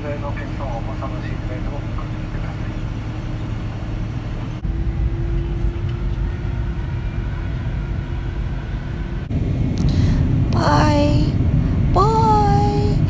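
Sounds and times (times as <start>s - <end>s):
jet engines rumbling: 0.0s - 13.0s
steady hum: 0.0s - 13.0s.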